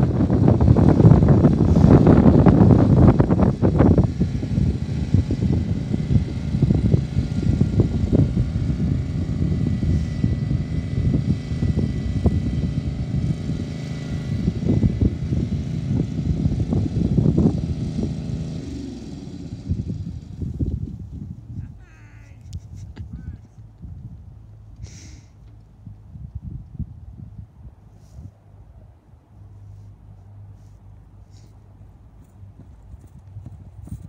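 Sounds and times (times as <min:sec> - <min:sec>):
lawn tractor engine rumbling: 0:00.0 - 0:26.2.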